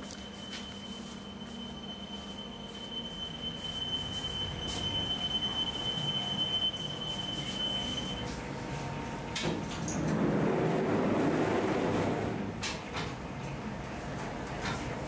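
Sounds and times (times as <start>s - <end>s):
oven alarm high-pitched tone: 0.0s - 8.4s
bakery machinery hum: 0.0s - 15.0s.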